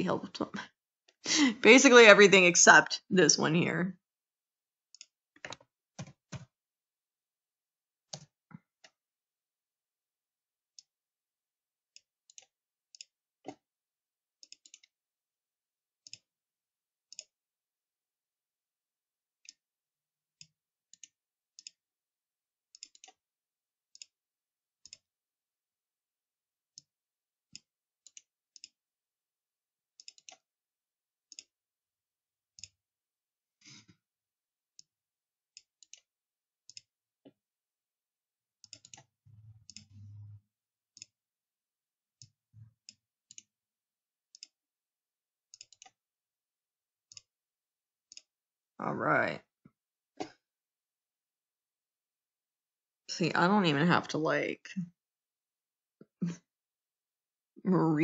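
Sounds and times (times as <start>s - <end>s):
computer mouse clicks: 14.4s - 14.9s, 22.8s - 23.2s, 30.0s - 30.4s, 38.6s - 40.3s, 45.5s - 46.0s.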